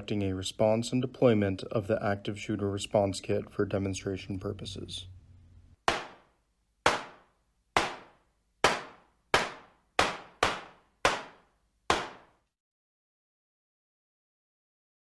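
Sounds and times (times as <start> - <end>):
sharp bangs: 5.8 - 6.3, 6.9 - 12.4.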